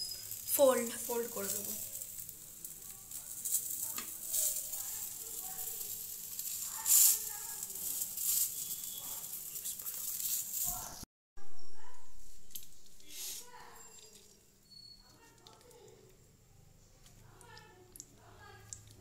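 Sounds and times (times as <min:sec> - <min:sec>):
omelette sizzling in a frying pan: 0:00.0 - 0:11.1, 0:12.2 - 0:19.0
metal spatula scraping a pan: 0:05.8 - 0:10.6.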